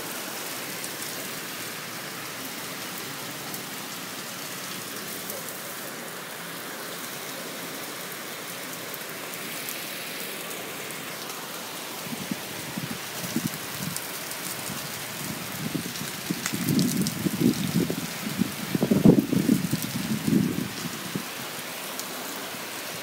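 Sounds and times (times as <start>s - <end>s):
heavy rain pouring: 0.0s - 23.0s
wind gusts buffeting microphone: 12.0s - 14.0s, 14.6s - 21.3s.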